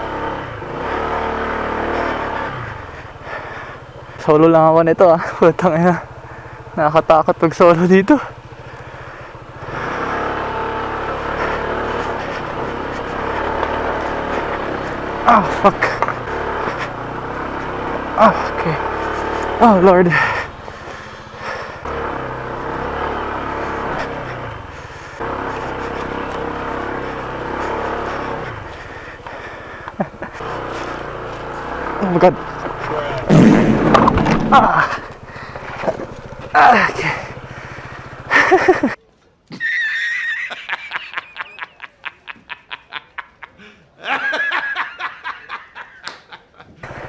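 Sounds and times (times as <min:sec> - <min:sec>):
scooter engine revving: 0:00.0 - 0:39.0, 0:46.8 - 0:47.0
man laughing mockingly: 0:11.2 - 0:20.5, 0:23.6 - 0:25.2, 0:25.8 - 0:31.2, 0:34.2 - 0:36.0, 0:38.2 - 0:46.8.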